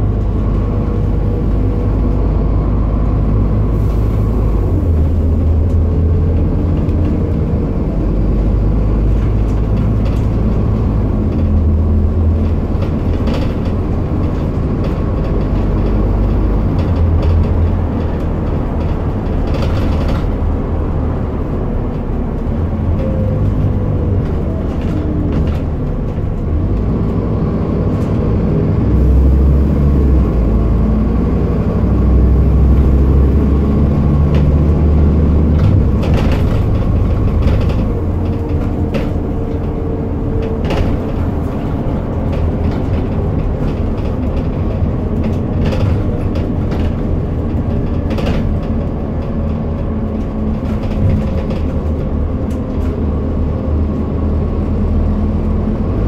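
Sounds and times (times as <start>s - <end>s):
bus diesel engine running: 0.0s - 56.0s
bodywork and windows rattling: 31.9s - 54.8s.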